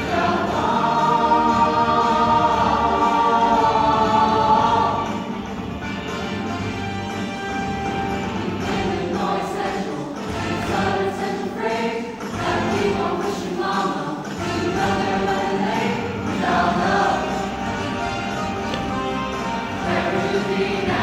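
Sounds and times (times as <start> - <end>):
choir singing a rock song: 0.0 - 5.4, 8.4 - 18.0, 19.6 - 21.0.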